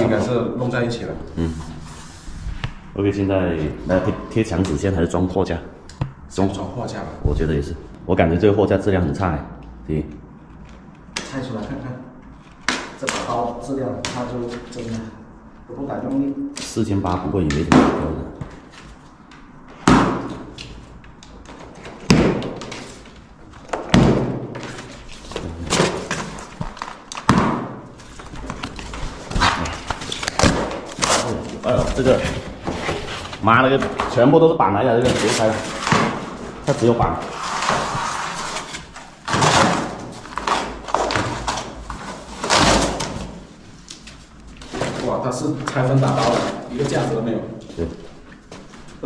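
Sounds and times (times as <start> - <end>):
thuds on cardboard carton: 22.0 - 22.8, 23.8 - 24.7, 27.3 - 27.8
cardboard tearing: 37.2 - 43.4.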